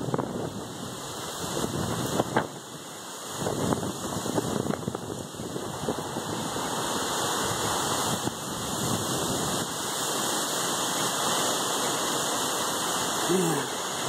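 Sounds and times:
strong wind buffeting microphone: 0:00.0 - 0:10.7.

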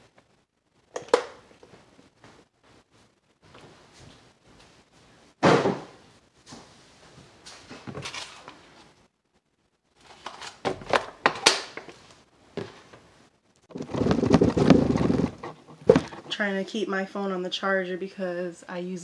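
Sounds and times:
kitchen knocks and clatters: 0:05.4 - 0:06.0, 0:13.8 - 0:16.3.

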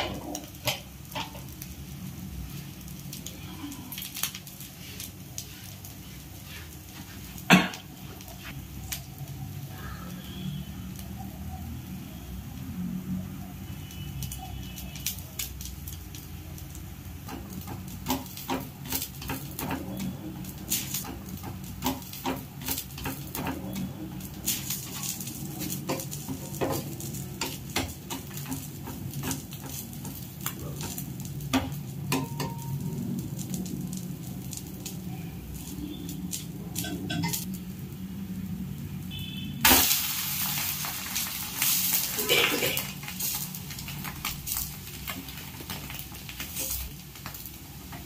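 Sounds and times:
spatula tapping and scraping pan: 0:17.2 - 0:20.0, 0:20.7 - 0:32.8
soft sizzling: 0:18.6 - 0:48.0.

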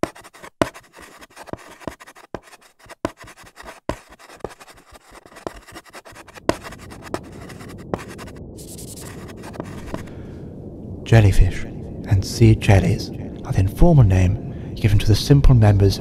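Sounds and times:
chalk tapping on blackboard: 0:00.0 - 0:10.0
chalk scratching strokes: 0:00.0 - 0:10.1
steady low hiss: 0:06.4 - 0:16.0.

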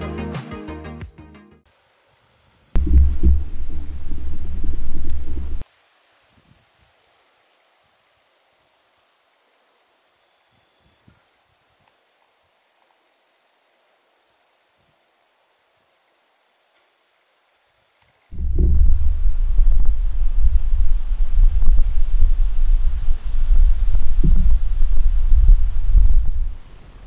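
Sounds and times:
insects chirring: 0:01.7 - 0:05.6, 0:15.5 - 0:27.0
loud low rumble: 0:02.8 - 0:05.6, 0:18.4 - 0:26.6.

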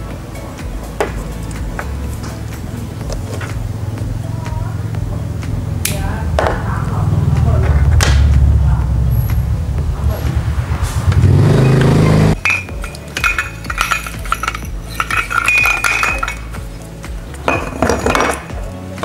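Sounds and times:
deep buzzing hum: 0:00.0 - 0:13.6
background music: 0:00.0 - 0:19.0
light clinks: 0:11.6 - 0:18.8.

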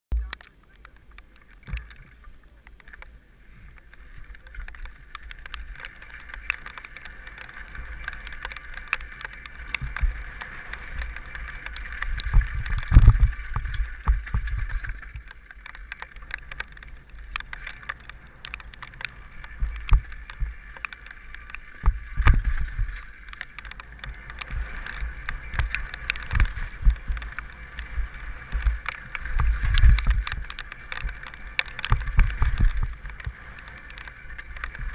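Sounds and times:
bike tyres and rattling over bumps: 0:00.1 - 0:34.9
deep rumble: 0:00.1 - 0:34.9.

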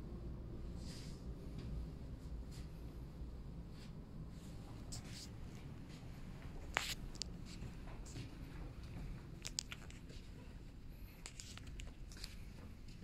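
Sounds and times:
steady low rumble: 0:00.0 - 0:13.0
footsteps on carpet: 0:04.4 - 0:09.2
phone handling clicks and rustles: 0:09.4 - 0:10.2.

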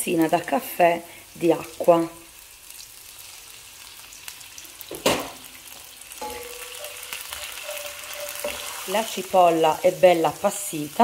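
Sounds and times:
onions sizzling in a frying pan: 0:00.0 - 0:11.0
wooden spatula stirring onions: 0:06.2 - 0:11.0.

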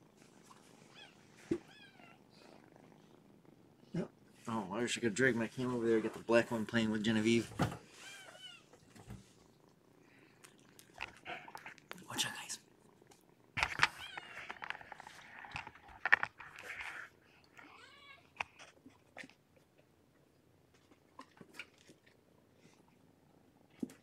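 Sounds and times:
kittens scuffling and rustling: 0:00.0 - 0:02.0, 0:04.2 - 0:09.6, 0:10.5 - 0:19.8.

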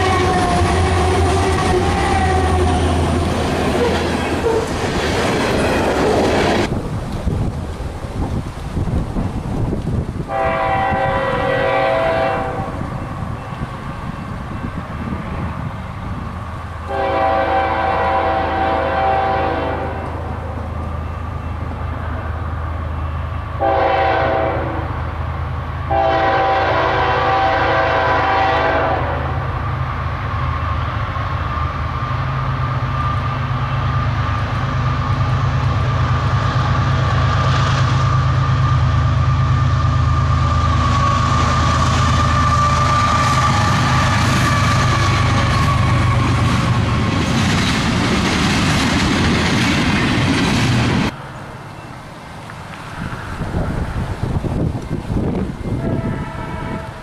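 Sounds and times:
locomotive air horn blasts: 0:00.0 - 0:04.6, 0:10.3 - 0:12.9, 0:16.8 - 0:20.3, 0:23.5 - 0:25.0, 0:25.9 - 0:29.6, 0:40.6 - 0:46.4, 0:55.6 - 0:57.0
locomotive engine rumble: 0:00.0 - 0:56.3
train running noise: 0:00.0 - 0:57.0.

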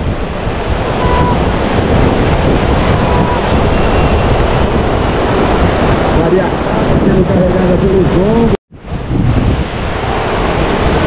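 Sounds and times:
ocean surf: 0:00.0 - 0:11.0
wind buffeting microphone: 0:00.0 - 0:11.0.

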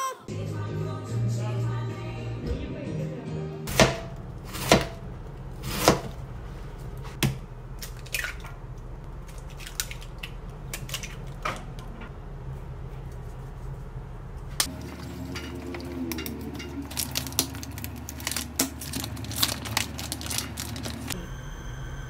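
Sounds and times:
music: 0:00.3 - 0:03.7.

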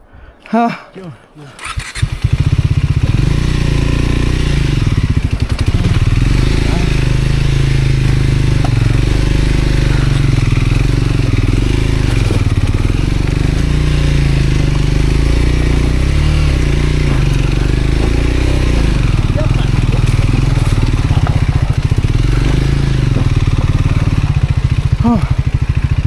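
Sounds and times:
motorcycle engine at low revs: 0:01.6 - 0:26.0.

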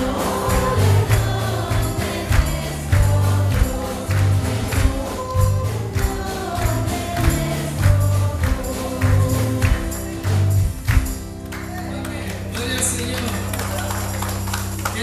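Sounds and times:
live band with bass and drums: 0:00.0 - 0:11.6
congregation singing a carol: 0:00.0 - 0:12.0
hand claps: 0:00.0 - 0:15.0.

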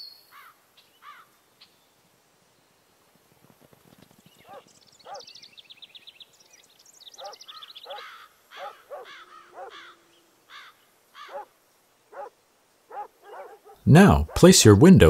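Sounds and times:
short arching bird calls: 0:07.1 - 0:11.5
bird trilling: 0:07.2 - 0:11.5.

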